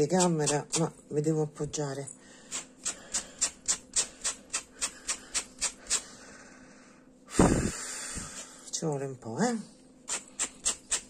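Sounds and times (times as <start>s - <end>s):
brush scratching through yarn: 10.1s - 11.0s.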